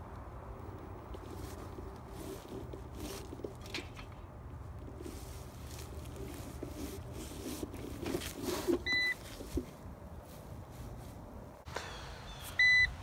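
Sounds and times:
rustling and handling noise: 0.0 - 11.6
short electronic beep: 12.6 - 12.9.

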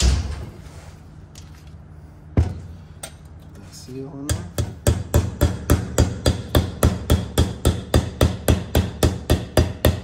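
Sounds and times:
hammer tapping metal: 4.2 - 10.0.

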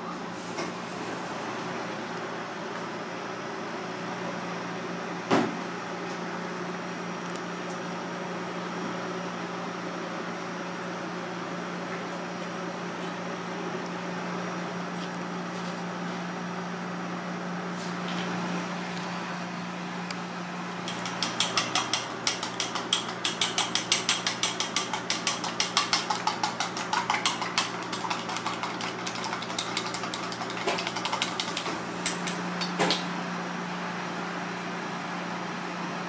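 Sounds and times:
chopsticks tapping metal bowl: 20.9 - 32.8.

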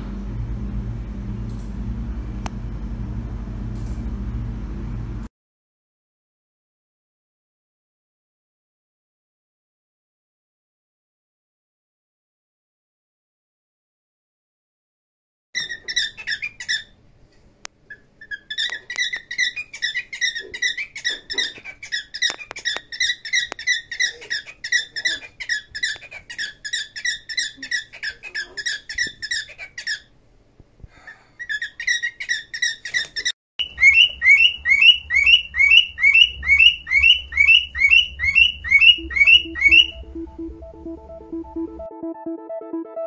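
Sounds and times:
low hum: 0.0 - 5.3, 33.6 - 43.0
parrots chirping: 15.6 - 17.0, 17.9 - 30.1, 31.4 - 40.0
cockatiel rising chirps: 31.4 - 40.0.

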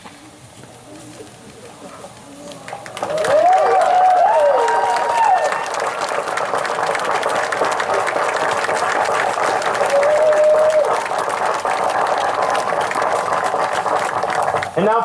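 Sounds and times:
crowd applauding: 2.3 - 15.0.

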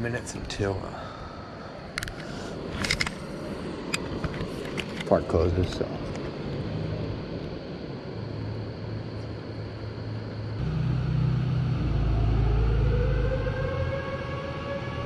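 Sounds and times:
stream and outdoor air rumble: 0.0 - 15.0
siren-like mechanical whine: 5.7 - 15.0.

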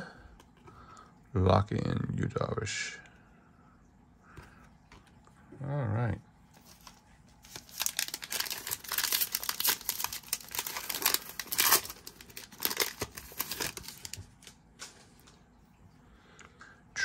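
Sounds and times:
foil wrapper tearing and crinkling: 6.6 - 14.9.

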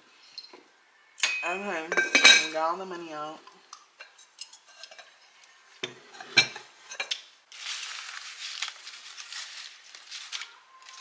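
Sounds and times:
paper money rustling: 7.5 - 11.0.

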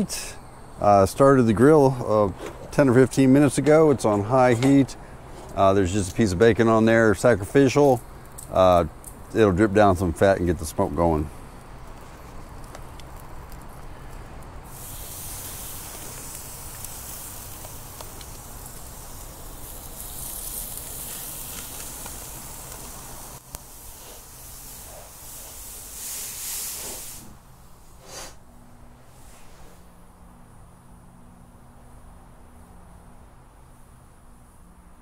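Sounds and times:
fish sizzling on grill: 5.0 - 28.4.

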